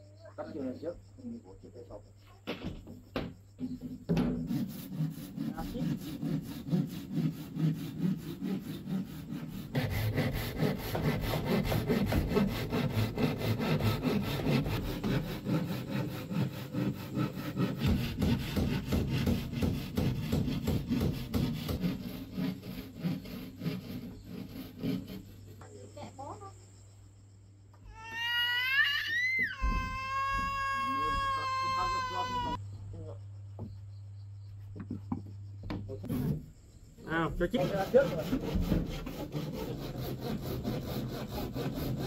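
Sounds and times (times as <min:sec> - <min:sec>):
handsaw cutting plywood: 0:03.8 - 0:25.6, 0:36.0 - 0:36.5, 0:37.3 - 0:42.0.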